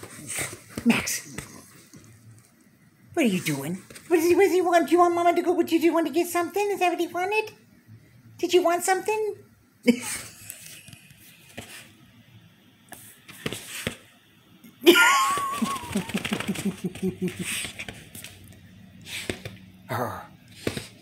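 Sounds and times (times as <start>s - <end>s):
woman laughing: 9.9s - 10.5s, 14.8s - 17.8s.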